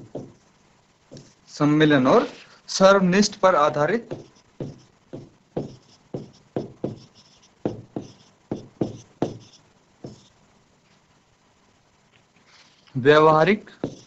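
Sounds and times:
pen strokes on a board: 0:00.0 - 0:00.5, 0:03.7 - 0:10.4, 0:13.8 - 0:14.0.

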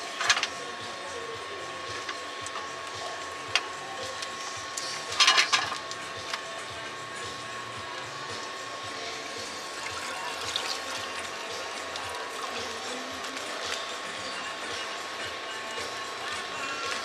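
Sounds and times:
mechanical hum with high tone: 0:00.0 - 0:17.0.

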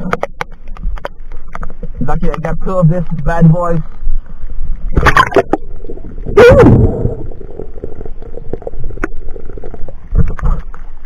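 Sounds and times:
person whooping underwater: 0:06.2 - 0:07.2.

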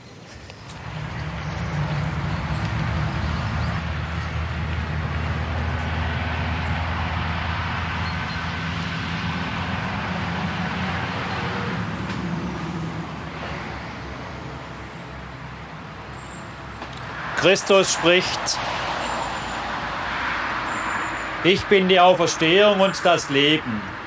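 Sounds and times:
car engine hum: 0:00.0 - 0:24.0
road noise: 0:00.0 - 0:24.0.

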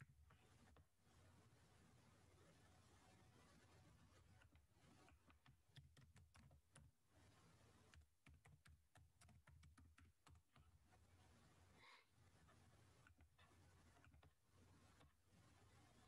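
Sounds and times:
keyboard typing: 0:04.1 - 0:11.1, 0:12.4 - 0:16.0.

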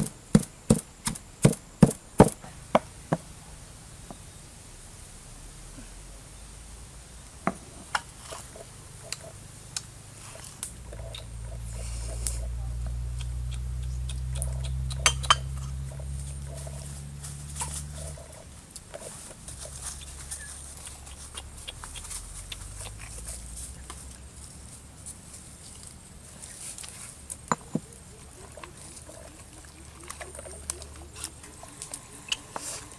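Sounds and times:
knocks in stone mortar: 0:00.0 - 0:02.4
low steady hum: 0:00.0 - 0:32.9.

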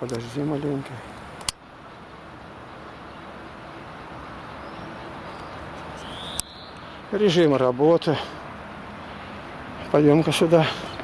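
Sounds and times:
outdoor background noise: 0:00.0 - 0:11.0
sharp click: 0:01.4 - 0:01.6
faint high rising chirp: 0:02.8 - 0:07.2.

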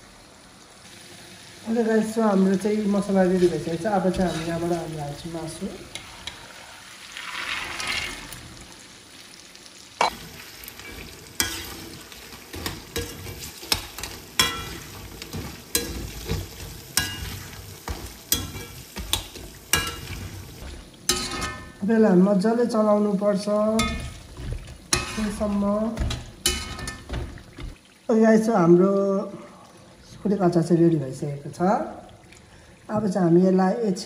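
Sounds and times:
meat sizzling in oil: 0:00.0 - 0:28.7
metal spatula scraping wok: 0:03.3 - 0:05.0, 0:10.2 - 0:21.8, 0:23.8 - 0:27.7.

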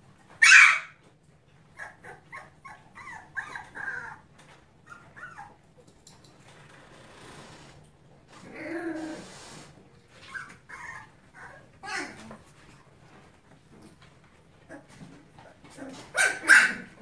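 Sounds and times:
puppies whining and yelping: 0:00.3 - 0:05.8, 0:10.1 - 0:12.4, 0:14.7 - 0:17.0.

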